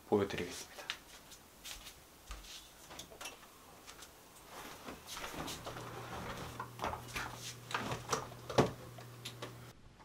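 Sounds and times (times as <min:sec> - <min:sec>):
clothing rustle: 0:00.9 - 0:08.4
low steady hum: 0:02.1 - 0:10.0.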